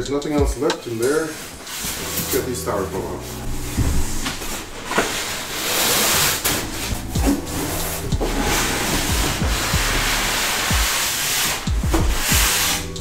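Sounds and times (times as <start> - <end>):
styrofoam scraping cardboard: 4.2 - 13.0.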